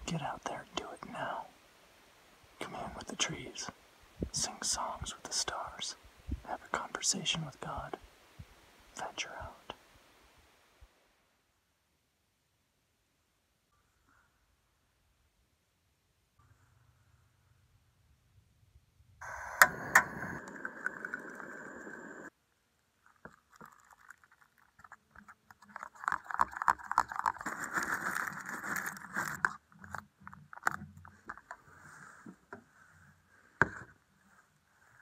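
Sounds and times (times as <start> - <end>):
rustling with sharp clicks: 19.2 - 33.1.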